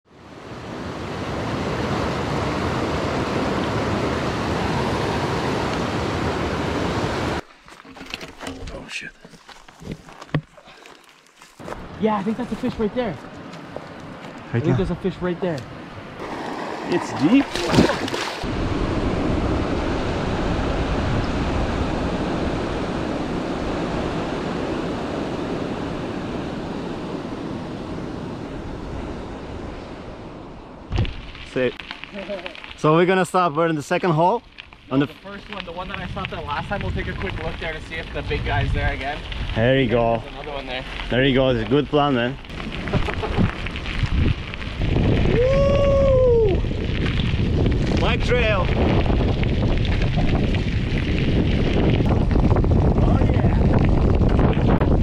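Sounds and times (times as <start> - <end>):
creek water rushing over rocks: 16.2 - 18.5.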